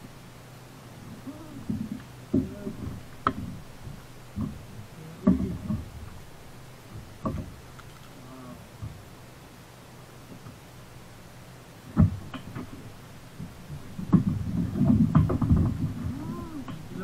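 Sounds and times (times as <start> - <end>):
knocks and thumps in a kayak: 1.1 - 8.0, 8.7 - 9.2, 11.8 - 17.0.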